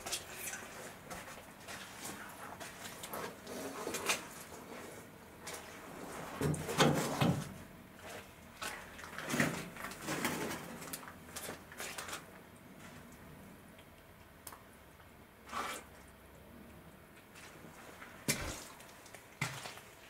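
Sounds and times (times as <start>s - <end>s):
footsteps crunching on debris: 17.4s - 20.0s.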